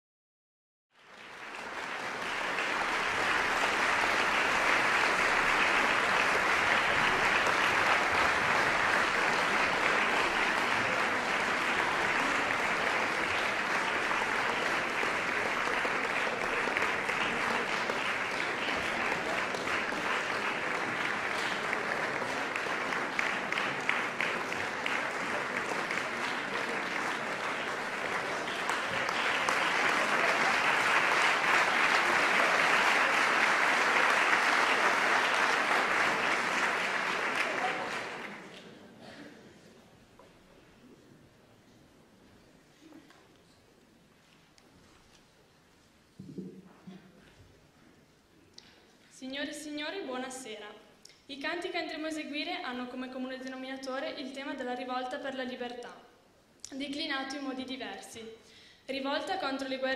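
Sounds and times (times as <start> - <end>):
audience applauding: 0.9 - 38.9.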